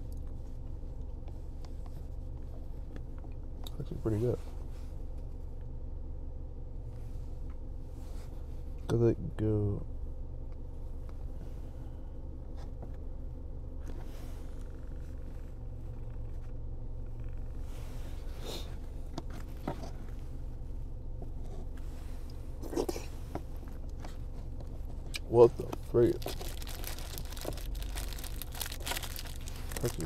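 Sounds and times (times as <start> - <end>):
car cabin hum: 0.0 - 30.0
paper cup and bag rustling: 25.8 - 30.0.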